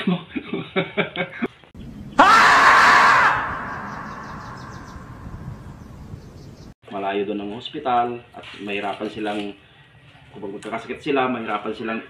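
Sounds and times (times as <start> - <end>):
marmot screaming: 2.2 - 5.5.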